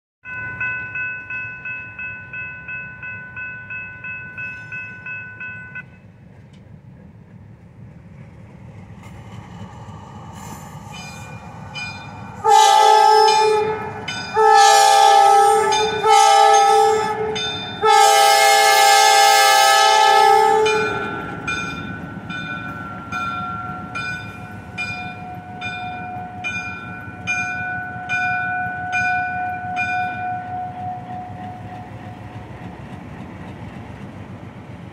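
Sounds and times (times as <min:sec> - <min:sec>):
crossing signal bells ringing: 0:00.2 - 0:06.2, 0:10.9 - 0:32.7
locomotive bell ringing: 0:00.2 - 0:06.2, 0:11.0 - 0:32.8
diesel locomotive engine running: 0:02.2 - 0:34.9
locomotive horn blasts: 0:12.4 - 0:21.2.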